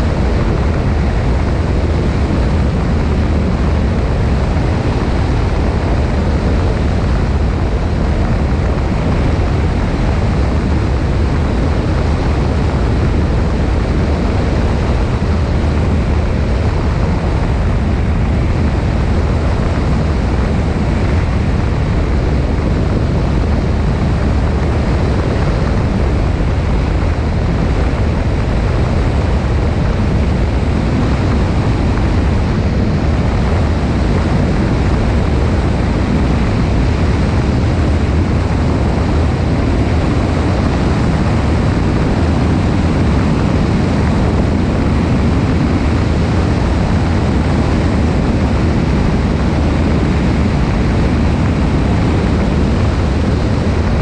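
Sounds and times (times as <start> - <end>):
airplane engine drone: 0.0 - 54.0
wind rushing over microphone: 0.0 - 54.0.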